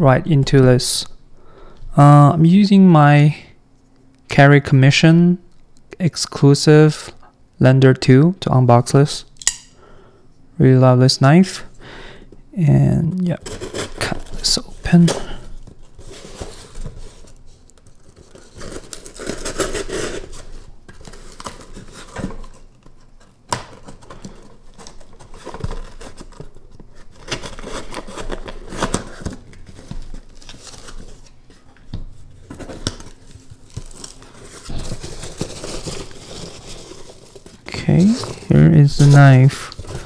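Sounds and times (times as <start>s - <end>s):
cardboard scraping and tearing: 13.4s - 31.4s, 32.4s - 40.0s
hand rustling packing peanuts: 13.4s - 40.0s.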